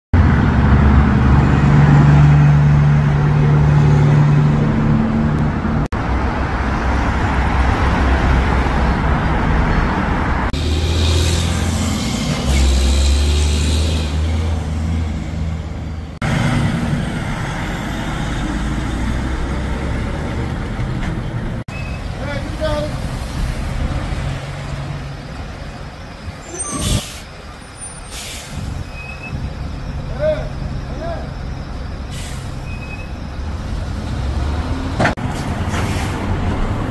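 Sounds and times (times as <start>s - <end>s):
diesel truck engines droning: 0.2s - 36.9s
air brake hisses: 26.6s - 27.3s, 28.0s - 28.8s, 32.1s - 33.0s.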